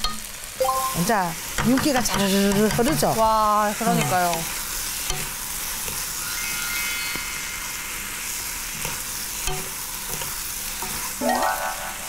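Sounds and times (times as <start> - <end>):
noodles sizzling in frying pan: 0.0 - 12.0
utensils knocking: 1.6 - 3.2.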